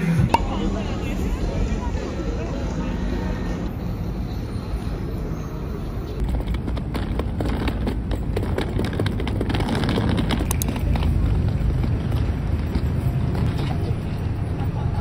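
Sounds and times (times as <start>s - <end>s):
street traffic: 0.0s - 15.0s
suitcase wheels rattling over paving: 6.1s - 14.6s.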